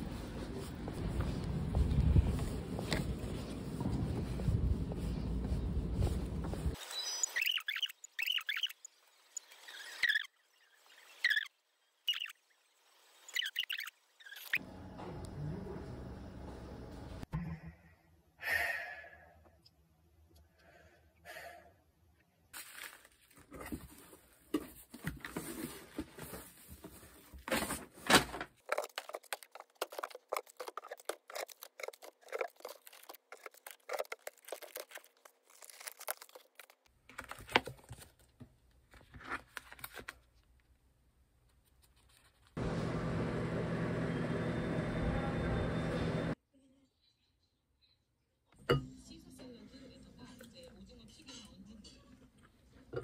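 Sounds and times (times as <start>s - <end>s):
plastic and cardboard crinkling: 22.6s - 40.6s.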